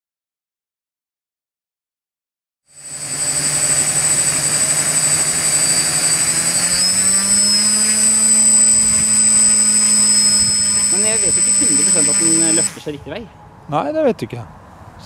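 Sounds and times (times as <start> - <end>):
drone propellers buzzing: 2.7 - 13.0.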